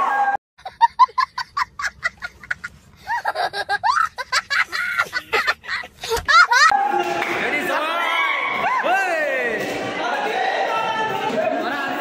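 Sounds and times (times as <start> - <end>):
young child laughing: 0.6 - 6.7.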